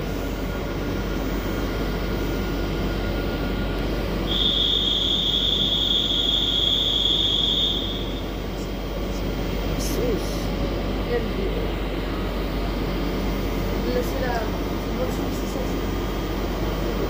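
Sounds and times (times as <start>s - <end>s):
high-pitched wheel squeal: 4.2s - 8.4s.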